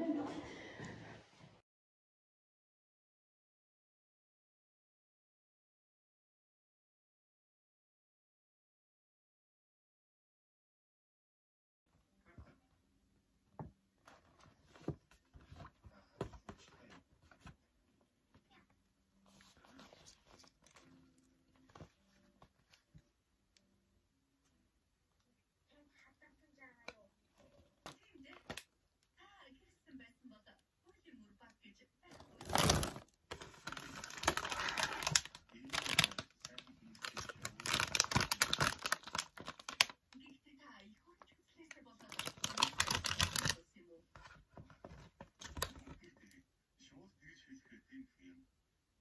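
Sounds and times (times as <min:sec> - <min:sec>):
plastic packaging crackling: 0:32.2 - 0:40.0, 0:42.0 - 0:43.6
paper bag rustling: 0:32.3 - 0:39.9, 0:42.1 - 0:43.6.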